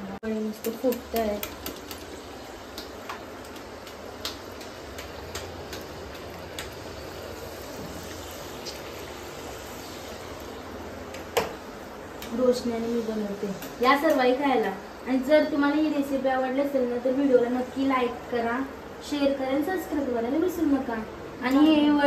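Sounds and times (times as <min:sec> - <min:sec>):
deep-frying sizzle in oil: 0:00.2 - 0:22.0.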